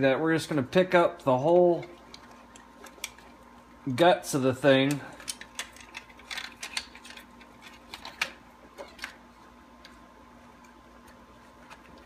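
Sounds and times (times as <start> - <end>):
plastic and wiring clicking and rattling: 4.8 - 9.2.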